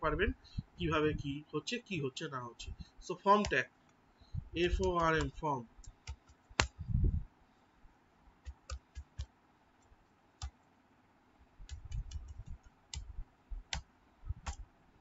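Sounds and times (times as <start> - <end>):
keyboard keystrokes: 4.7 - 6.8, 8.4 - 9.3, 11.6 - 13.1, 13.7 - 14.6.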